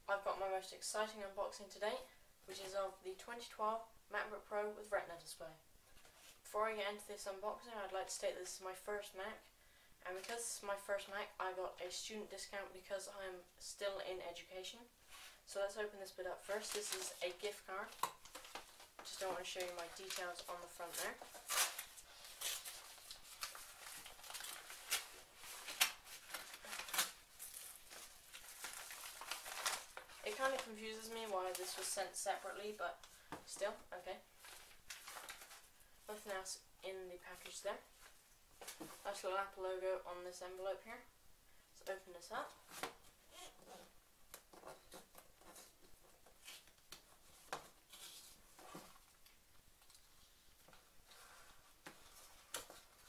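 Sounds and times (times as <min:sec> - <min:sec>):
paper envelope rustling: 0:18.2 - 0:32.0, 0:34.4 - 0:35.7
plastic bag ripping and crinkling: 0:18.2 - 0:32.0.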